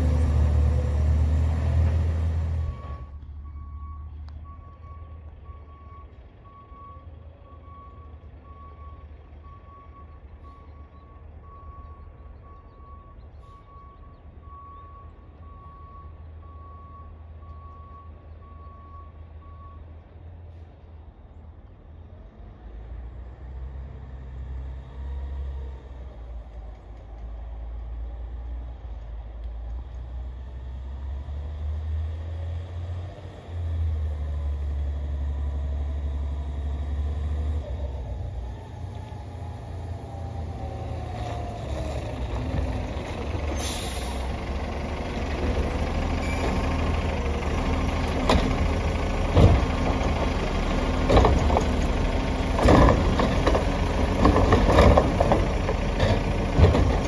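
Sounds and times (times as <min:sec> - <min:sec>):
truck engine rumble: 0:00.0 - 0:57.0
truck backup alarm beeping: 0:02.6 - 0:19.9.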